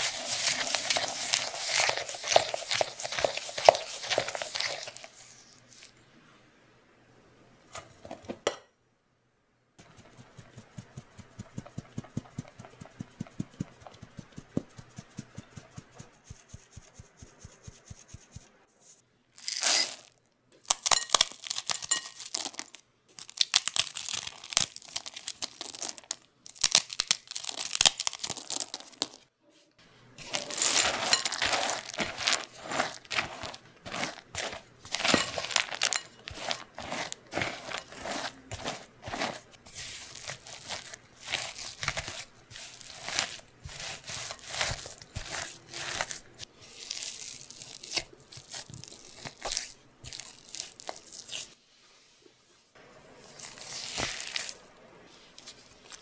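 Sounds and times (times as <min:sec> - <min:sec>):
chocolate chips rattling into bowl: 0:00.0 - 0:05.9, 0:20.7 - 0:29.2, 0:30.2 - 0:39.4, 0:40.0 - 0:46.2
spatula crunching and scraping dough: 0:00.0 - 0:06.0, 0:09.8 - 0:29.3, 0:30.2 - 0:51.6, 0:53.2 - 0:56.0
flour sieve tapping: 0:09.8 - 0:17.6, 0:30.2 - 0:46.2.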